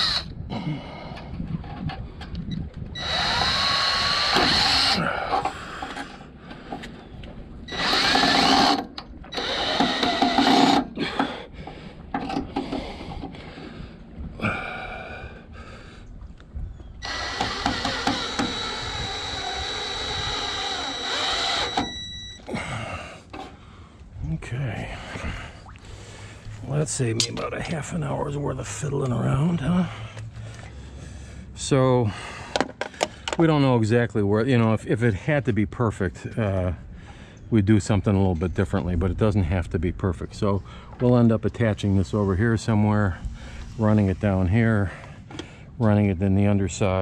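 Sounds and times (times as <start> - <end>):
cordless drill motor whine: 0.0 - 0.4, 2.9 - 5.0, 7.7 - 10.9, 17.0 - 22.5.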